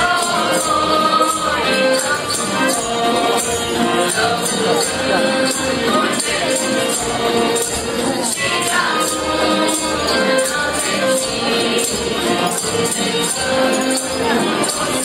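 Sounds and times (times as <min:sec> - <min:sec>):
mixed choir singing: 0:00.0 - 0:07.2, 0:08.2 - 0:15.0
bells shaken on the beat: 0:00.0 - 0:15.0.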